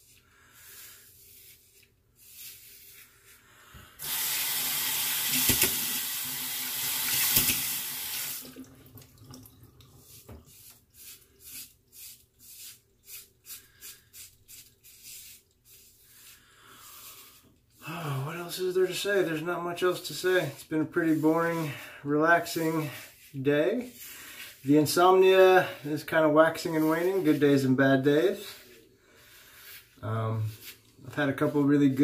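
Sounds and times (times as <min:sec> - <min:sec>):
sink tap running: 0:04.0 - 0:10.0.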